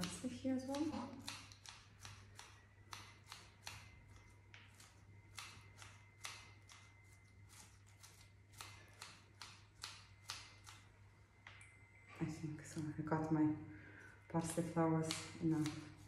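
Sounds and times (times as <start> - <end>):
scissors snipping herbs: 0.0 - 10.9, 14.4 - 16.0.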